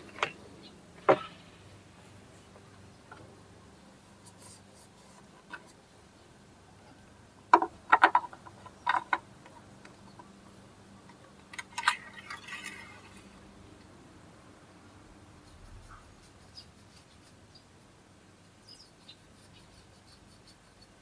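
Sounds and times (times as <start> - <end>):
objects knocking and clicking: 7.5 - 9.9.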